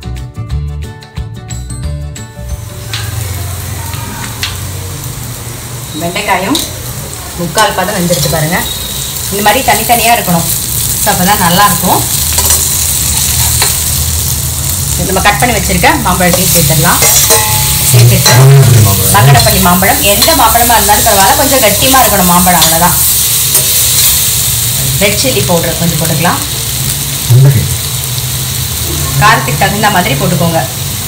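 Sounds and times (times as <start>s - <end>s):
okra sizzling in hot oil: 2.4s - 31.0s
spatula scraping a pan: 16.3s - 18.4s.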